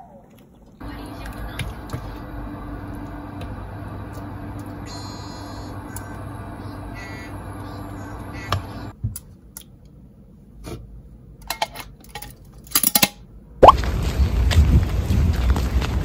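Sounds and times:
steady low hum: 0:00.0 - 0:11.4.

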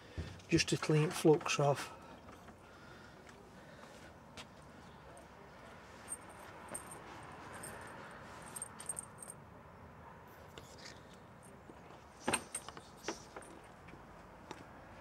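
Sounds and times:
metallic clinks and jingling: 0:06.0 - 0:09.4.

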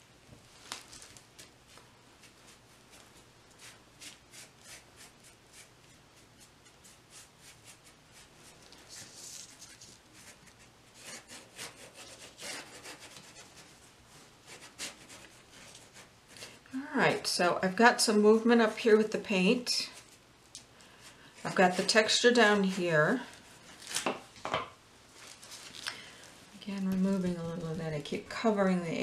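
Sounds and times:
brush scrubbing paint on canvas: 0:02.2 - 0:17.2, 0:21.0 - 0:23.8.

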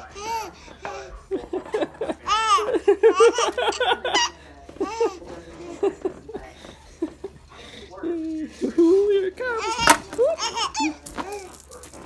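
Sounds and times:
infant laughing: 0:00.1 - 0:06.0, 0:09.6 - 0:11.5.

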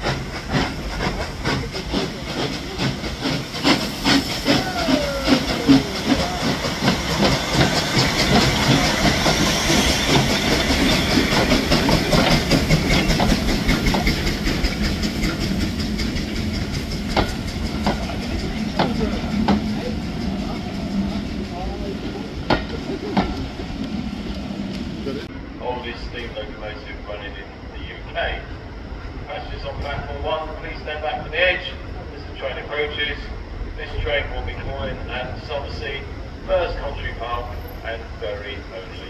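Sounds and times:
steam hissing: 0:00.0 - 0:27.3
steam locomotive exhaust beats: 0:00.0 - 0:39.0.

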